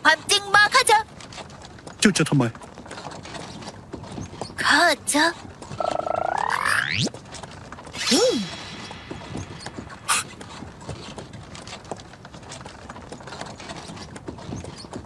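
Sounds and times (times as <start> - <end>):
horse hooves clip-clopping: 0.0 - 6.4, 7.0 - 15.0
wooden carriage clattering and creaking: 0.0 - 15.0
swish: 8.0 - 10.6.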